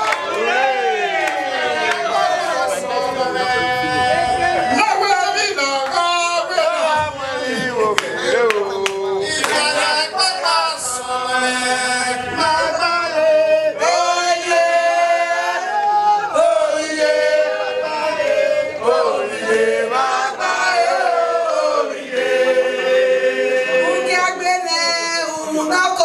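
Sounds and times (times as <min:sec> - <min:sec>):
group singing held notes: 0:00.0 - 0:25.7.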